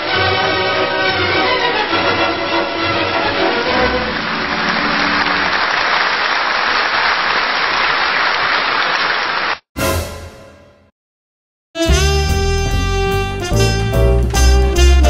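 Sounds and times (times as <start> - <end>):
music: 0.0 - 5.6, 9.8 - 10.9, 11.8 - 15.0
applause: 3.8 - 9.7.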